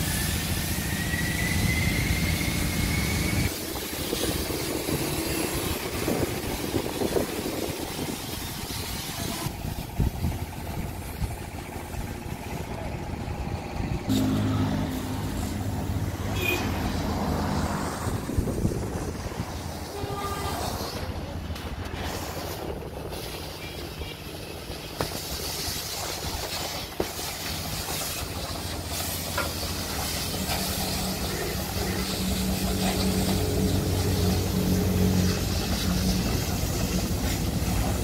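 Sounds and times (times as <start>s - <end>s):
water jet hissing on metal: 0.0s - 10.1s, 18.5s - 38.0s
pressure washer humming: 0.0s - 38.0s.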